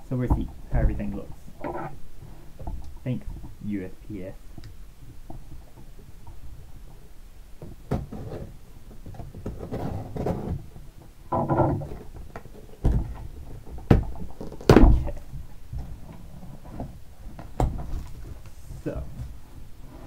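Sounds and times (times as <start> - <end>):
cardboard rustling and scraping: 9.3 - 10.8.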